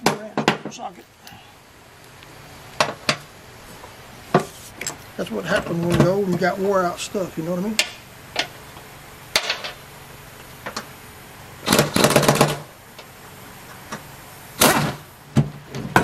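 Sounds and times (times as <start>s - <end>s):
impact wrench rattling: 11.6s - 12.6s.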